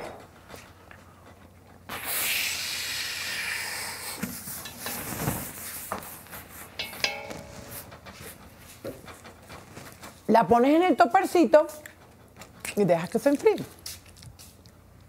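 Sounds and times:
steady hiss: 0:01.9 - 0:07.2.

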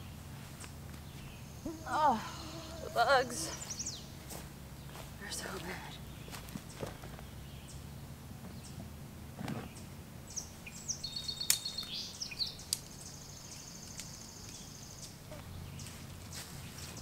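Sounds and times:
songbirds chirping: 0:00.0 - 0:17.0
steady background hum: 0:00.0 - 0:17.0
soft rustle: 0:15.4 - 0:17.0.

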